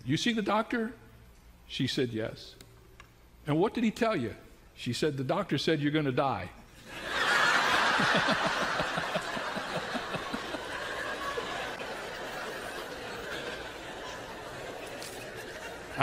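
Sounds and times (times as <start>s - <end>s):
audience laughing: 6.8s - 16.0s.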